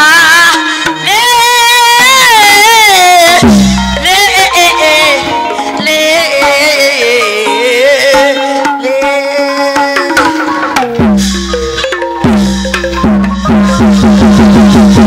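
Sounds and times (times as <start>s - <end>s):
wavering gliding melody: 3.3s - 14.5s.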